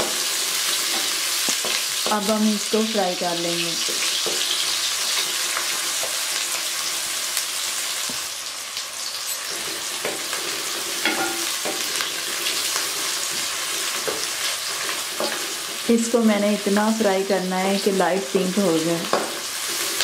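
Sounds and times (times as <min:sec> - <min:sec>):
onions sizzling in hot oil: 0:00.0 - 0:20.0.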